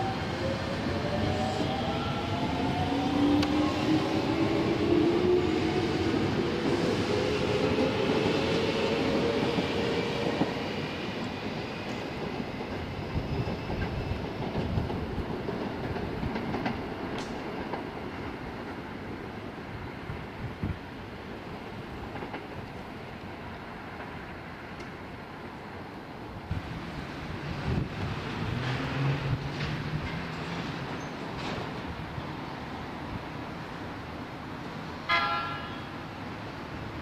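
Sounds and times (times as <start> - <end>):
train wheels rumbling and clicking: 0.7 - 19.2, 21.9 - 23.3, 26.5 - 32.3.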